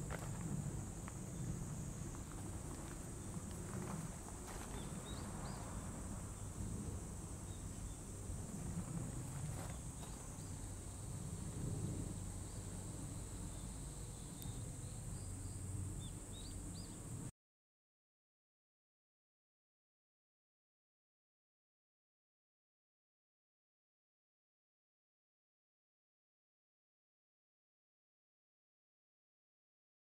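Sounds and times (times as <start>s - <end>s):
high insect drone: 0.0s - 17.3s
faint chirps: 12.3s - 17.1s.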